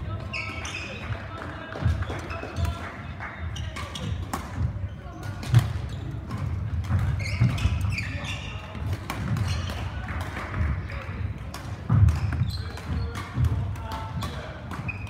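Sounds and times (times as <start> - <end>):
racket hitting shuttlecock: 3.6 - 15.0.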